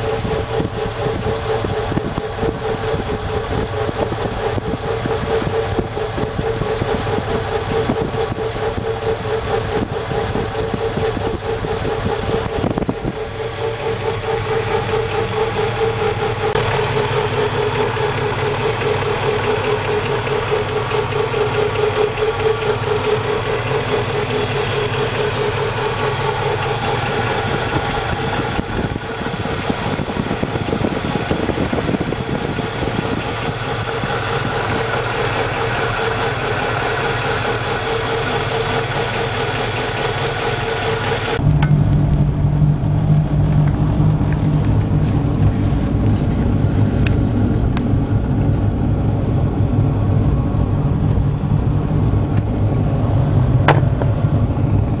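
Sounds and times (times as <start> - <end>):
car engine idling: 0.0 - 55.0
mid-pitched hum: 41.4 - 55.0.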